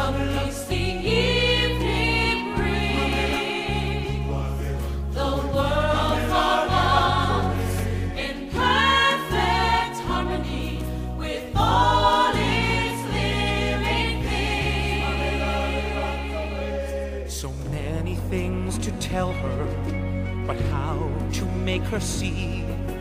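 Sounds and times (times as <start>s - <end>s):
choir singing a slow ballad: 0.0s - 17.9s
sustained instrumental backing: 0.0s - 23.0s.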